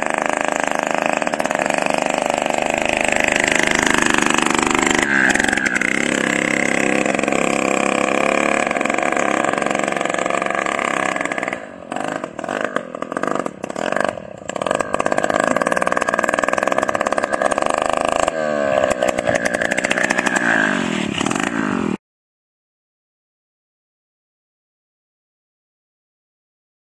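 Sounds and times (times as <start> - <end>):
small minibike engine running: 0.0 - 22.0.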